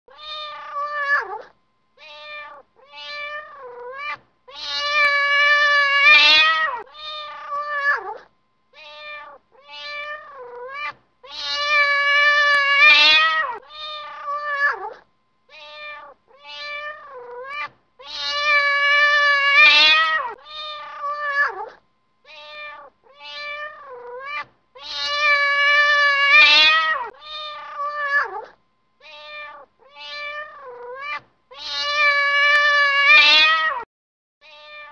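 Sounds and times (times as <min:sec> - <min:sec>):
cat meowing: 0:00.1 - 0:34.9.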